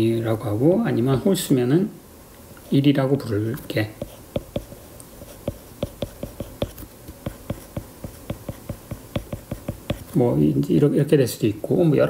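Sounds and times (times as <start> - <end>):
stylus tapping on glass screen: 4.0 - 4.7, 5.3 - 10.0.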